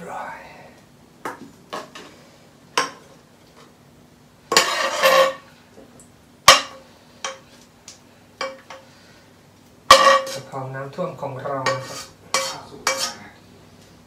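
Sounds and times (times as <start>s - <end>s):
spatula scraping steel pan: 4.5s - 5.5s, 9.9s - 10.5s, 11.6s - 13.2s.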